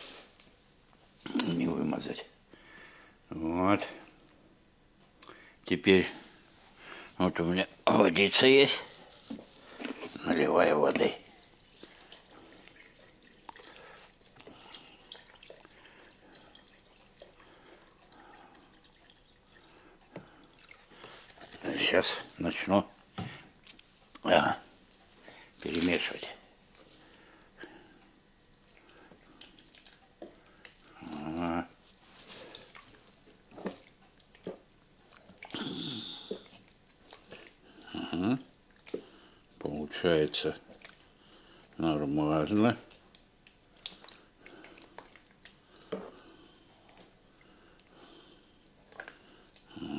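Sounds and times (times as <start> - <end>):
food squelching while stirred: 8.8 - 49.9
water pouring into bowl: 11.0 - 22.3.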